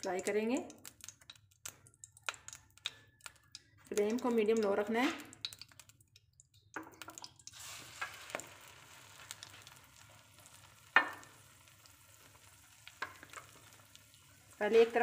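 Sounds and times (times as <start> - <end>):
bread sizzling in a pan: 7.4 - 15.0.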